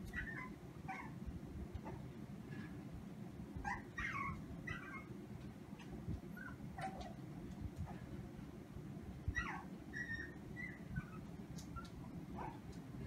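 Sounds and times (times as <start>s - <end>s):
dog whining: 0.0s - 1.2s, 3.6s - 5.1s, 9.3s - 12.6s.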